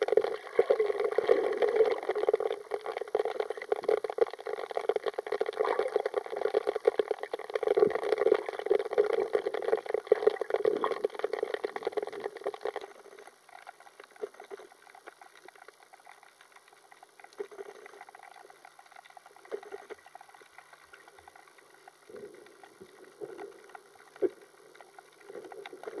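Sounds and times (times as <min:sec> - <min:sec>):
underwater pops and gurgles: 0:00.0 - 0:12.9
underwater crackling gurgle: 0:00.0 - 0:26.0.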